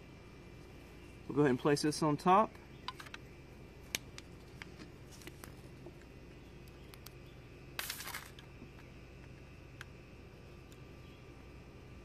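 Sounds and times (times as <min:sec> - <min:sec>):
twig fire crackling: 0:03.7 - 0:10.0.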